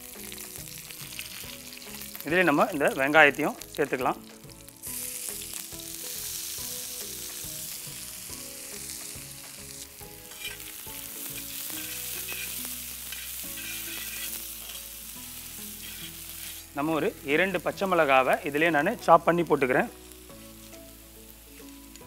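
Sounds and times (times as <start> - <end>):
onions sizzling in hot oil: 0.0 - 22.0
spatula scraping pan: 10.1 - 14.9, 15.7 - 16.7.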